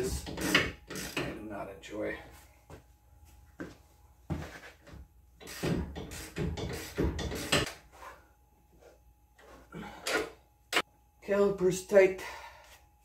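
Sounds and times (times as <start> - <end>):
hand ratchet strokes: 0.0 - 1.3, 5.4 - 7.8.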